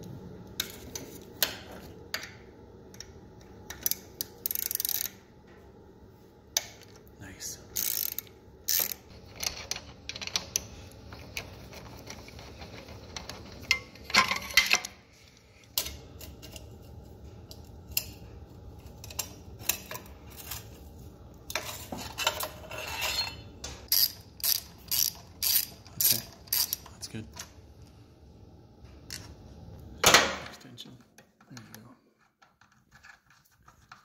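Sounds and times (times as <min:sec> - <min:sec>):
socket ratchet clicking: 0:03.7 - 0:05.1, 0:07.8 - 0:09.1, 0:23.9 - 0:26.8.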